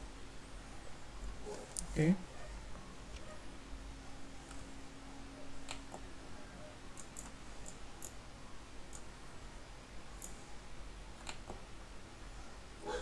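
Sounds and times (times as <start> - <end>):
faint steady hum: 0.0 - 13.0
computer mouse clicking: 6.9 - 8.2, 8.9 - 9.1, 10.2 - 10.4, 11.2 - 11.6.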